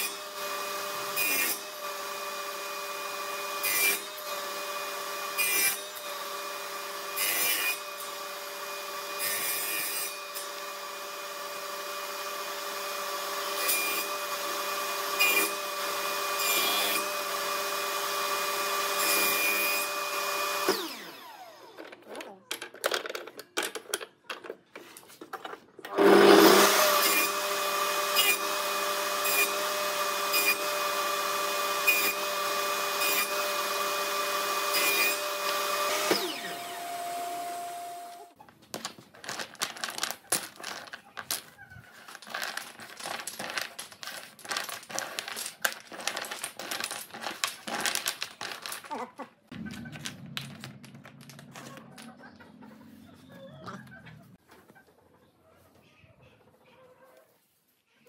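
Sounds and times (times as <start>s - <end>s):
table saw running: 0.0s - 21.8s, 25.9s - 38.4s
wooden blocks clicking and clattering: 21.8s - 25.7s, 38.6s - 52.1s.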